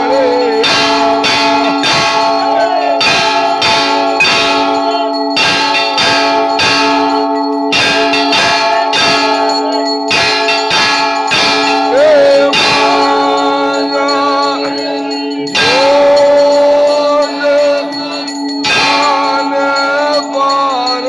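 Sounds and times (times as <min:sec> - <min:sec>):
person singing long notes: 0:00.0 - 0:03.4, 0:11.8 - 0:21.0
temple bells ringing: 0:00.0 - 0:21.0.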